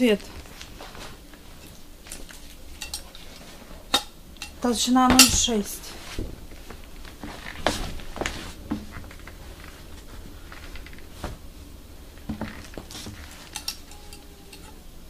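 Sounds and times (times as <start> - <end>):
leather rustling: 5.1 - 13.6.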